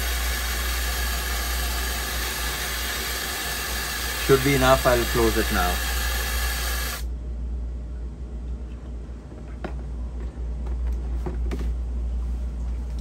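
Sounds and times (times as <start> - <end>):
water hissing from drain valve: 0.0 - 7.1
steady low hum: 0.0 - 13.0.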